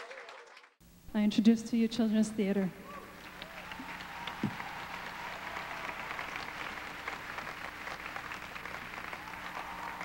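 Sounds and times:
audience applauding: 0.0 - 0.8, 3.1 - 10.0.

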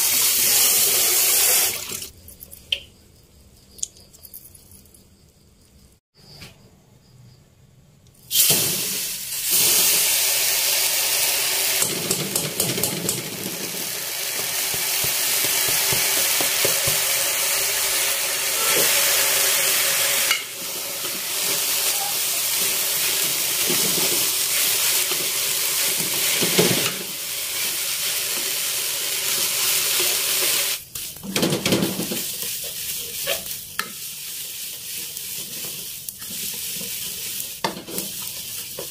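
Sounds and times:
seeds sizzling in a wok: 8.2 - 38.9
wooden spatula stirring: 31.0 - 38.9.

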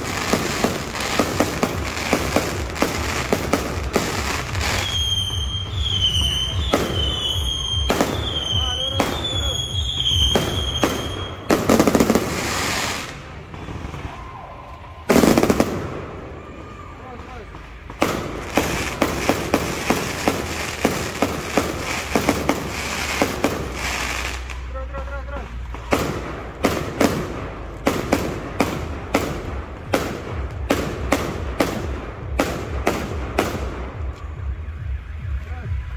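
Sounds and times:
firework whistle: 0.0 - 17.0, 18.0 - 24.7
fireworks crackling bursts: 0.0 - 35.9.

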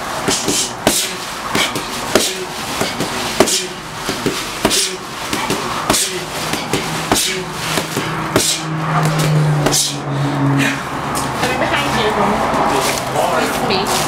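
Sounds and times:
boxing gloves hitting focus mitts: 0.2 - 10.0.

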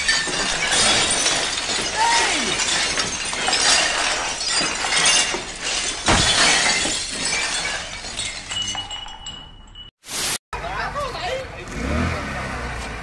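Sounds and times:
glassware crashing and shattering: 0.0 - 10.0.

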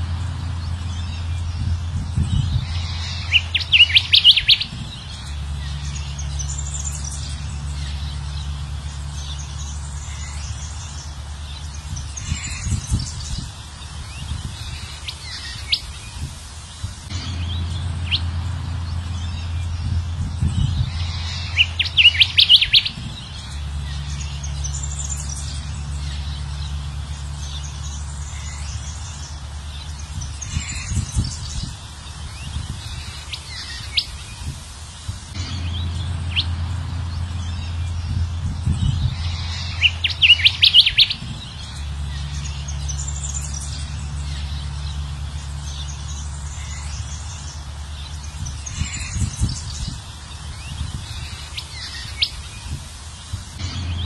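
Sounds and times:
steady low hum: 0.0 - 54.0
bird chirps and whistles: 3.3 - 4.7, 21.5 - 23.0.

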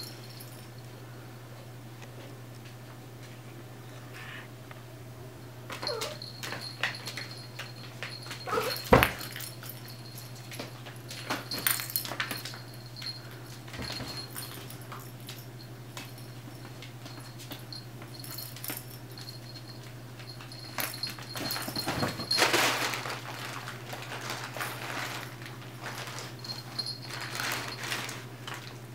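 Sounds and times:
steady low hum: 0.0 - 28.9
puppy whining: 5.7 - 6.5, 8.2 - 9.3
animals clicking and rustling: 5.7 - 28.9.

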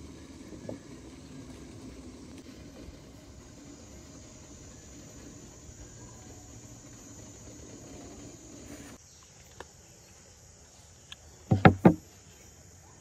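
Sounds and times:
insects buzzing: 0.0 - 13.0
plate knocking on wooden table: 11.5 - 12.0.

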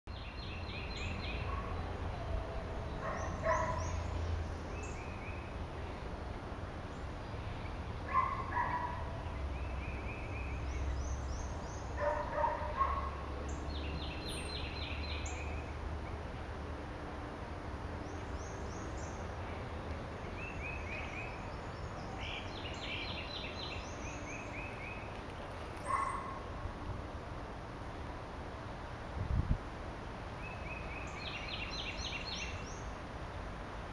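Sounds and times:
thin high birdsong: 18.0 - 26.5.

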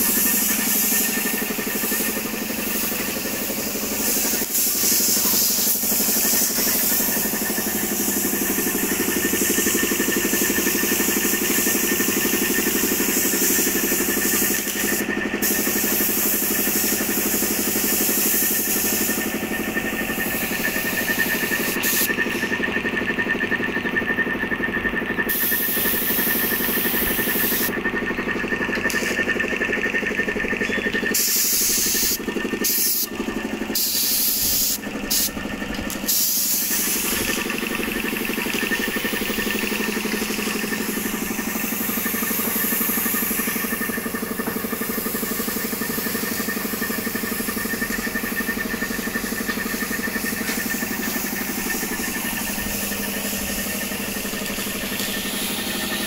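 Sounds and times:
engine idling hum: 0.0 - 56.0
high whine: 25.7 - 56.0.

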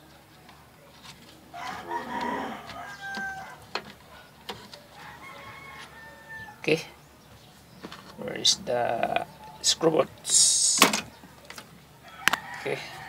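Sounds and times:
rooster crowing: 1.5 - 3.7, 5.0 - 6.7, 12.0 - 13.0.

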